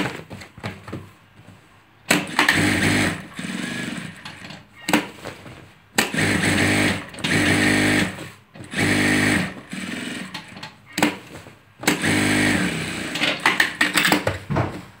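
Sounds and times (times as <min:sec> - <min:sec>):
sewing machine stitching: 0:02.1 - 0:05.1, 0:06.0 - 0:11.2, 0:11.8 - 0:14.3.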